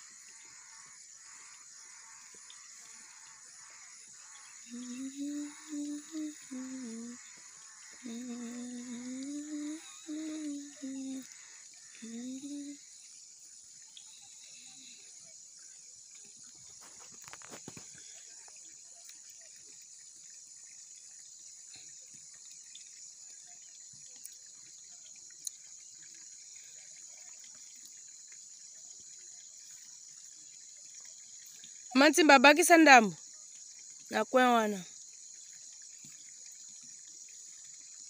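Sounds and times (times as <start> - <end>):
insects chirring: 0.0 - 38.0
faint ticks: 0.2 - 13.2, 15.6 - 32.0.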